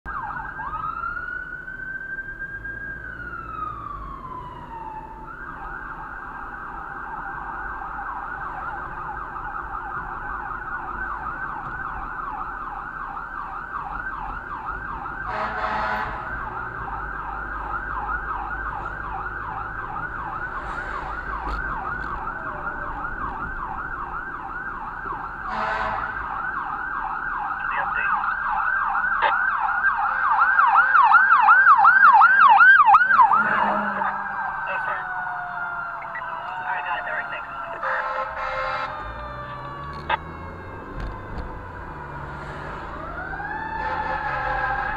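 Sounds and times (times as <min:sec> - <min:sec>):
fire engine siren: 0:00.0 - 0:44.9
short horn blasts: 0:15.3 - 0:16.3, 0:25.5 - 0:26.2, 0:33.2 - 0:34.5, 0:37.8 - 0:39.0, 0:43.8 - 0:44.9.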